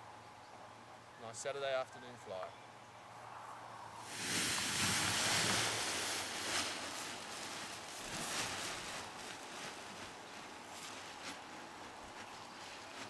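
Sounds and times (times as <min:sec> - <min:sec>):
wind rushing over microphone: 0:04.1 - 0:08.2.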